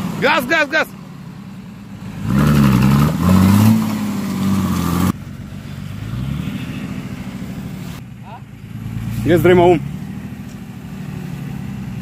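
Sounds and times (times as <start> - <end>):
engine revving hard: 2.2 - 5.1.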